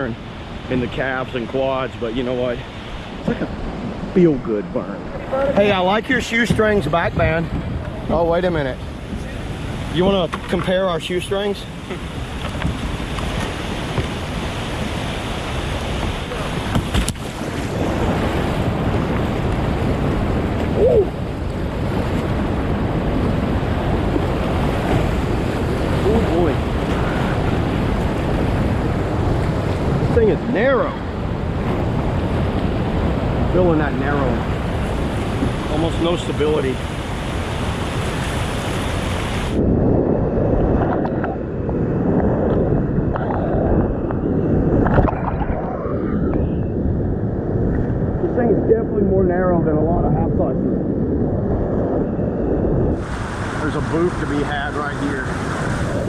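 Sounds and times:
whitewater rushing: 0.0s - 39.6s, 53.0s - 56.0s
water splashing against kayak: 5.1s - 48.2s, 52.7s - 56.0s
whitewater rapids rushing: 53.0s - 56.0s.

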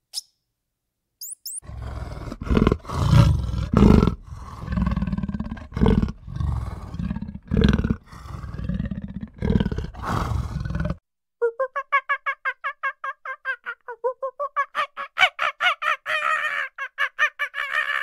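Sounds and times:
cheetah rasping growls: 1.6s - 11.0s.

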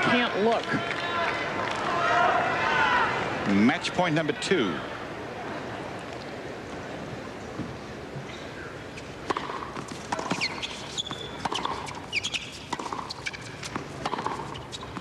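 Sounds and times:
tennis ball bouncing on court: 9.2s - 15.0s.

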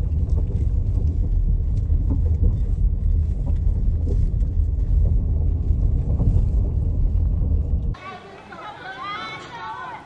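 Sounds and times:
car tyres rumbling on gravel: 0.0s - 8.0s.

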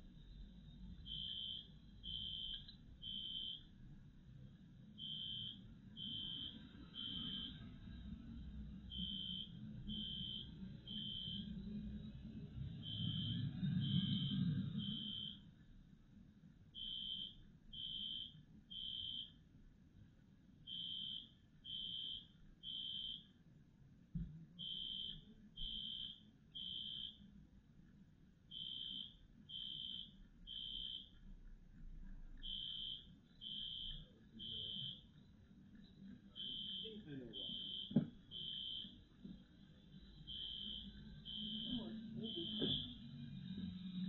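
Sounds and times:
fire alarm beeping: 1.0s - 3.7s, 5.0s - 7.6s, 8.9s - 11.6s, 12.8s - 15.5s, 16.8s - 19.4s, 20.7s - 23.4s, 24.6s - 27.3s, 28.5s - 31.2s, 32.4s - 35.2s, 35.8s - 39.0s, 39.7s - 43.4s.

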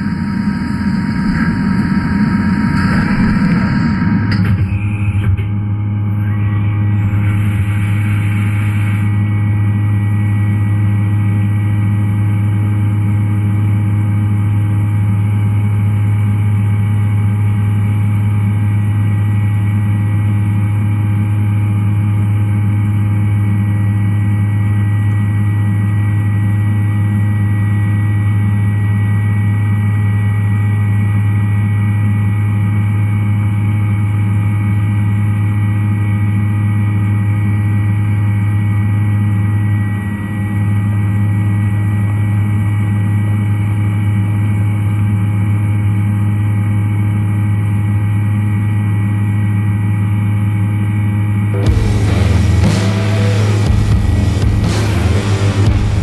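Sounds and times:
milling machine hum: 0.0s - 28.7s, 51.4s - 56.0s.

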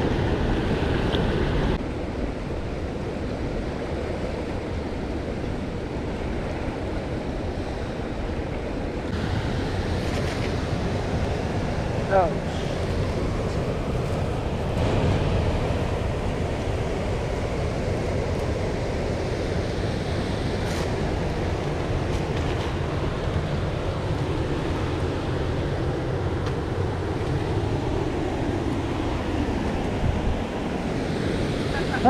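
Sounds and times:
wind rumble on microphone: 0.0s - 32.0s
creek water rushing: 9.1s - 32.0s.

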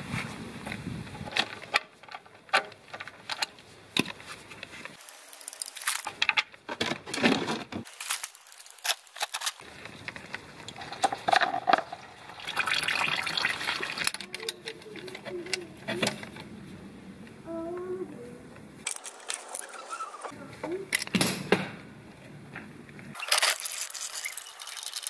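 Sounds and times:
tools clicking and rattling: 14.0s - 16.4s, 18.8s - 20.1s.

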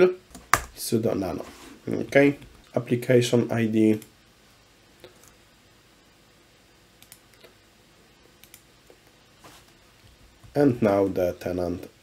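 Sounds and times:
computer mouse clicks: 7.0s - 7.5s, 8.4s - 8.7s.

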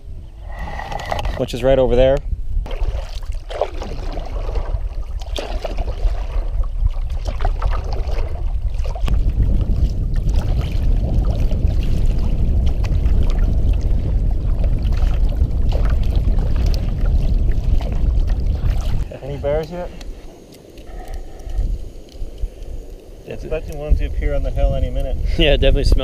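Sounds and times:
wind rumble on microphone: 0.0s - 26.0s
water splashing around canoe: 2.6s - 21.1s.

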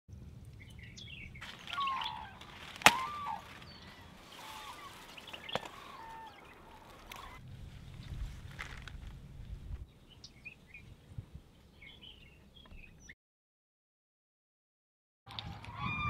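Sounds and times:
birds chirping: 0.1s - 13.2s.

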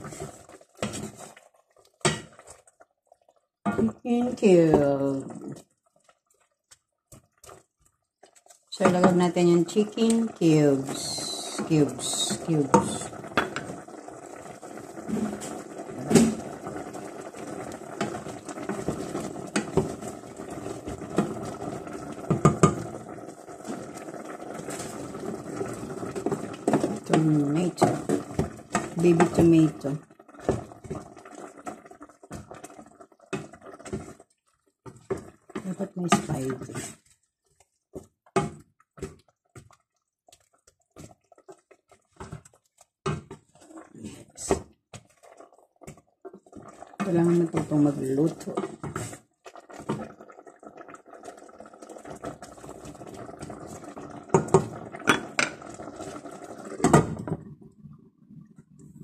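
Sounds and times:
spoon knocking and scraping pot: 0.0s - 1.4s, 2.0s - 2.4s, 11.6s - 13.8s, 22.3s - 22.9s, 26.2s - 29.6s, 54.3s - 55.7s
spoon stirring wet squelches: 0.0s - 56.8s
food simmering: 0.0s - 59.0s.

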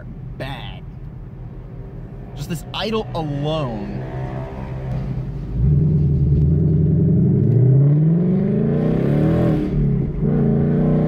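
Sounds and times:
car engine accelerating hard: 1.7s - 11.0s.

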